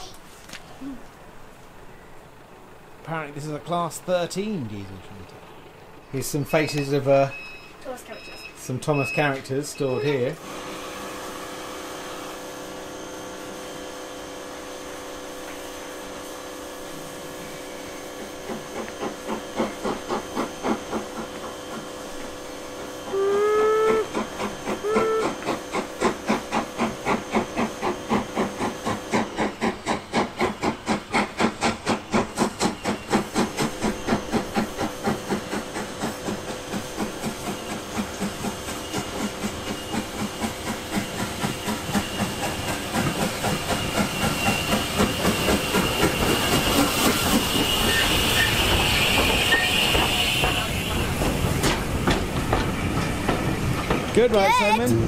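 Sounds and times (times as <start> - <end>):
locomotive exhaust chuffs: 3.0 - 55.0
steam hiss: 8.6 - 54.8
steam locomotive whistle: 23.0 - 25.6, 43.8 - 51.2.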